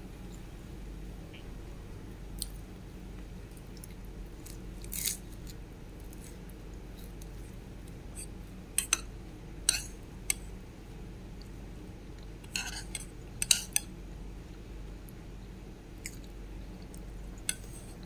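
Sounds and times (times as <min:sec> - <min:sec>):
low steady hum: 0:00.0 - 0:18.0
metal spoon scraping a bowl: 0:12.5 - 0:13.8.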